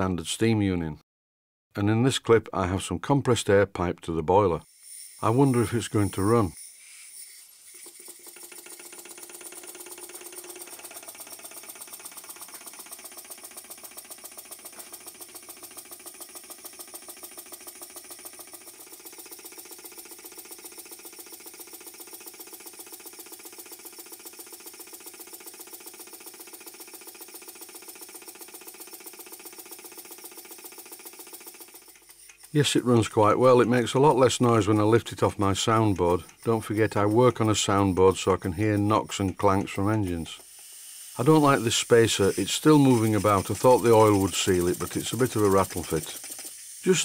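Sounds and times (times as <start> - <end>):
toy steam engine knocking: 4.8 - 47.0.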